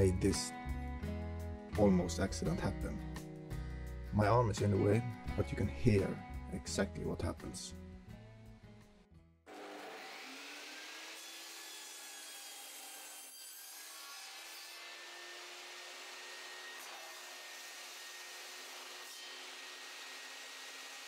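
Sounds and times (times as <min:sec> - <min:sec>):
table saw whining: 0:09.5 - 0:21.0.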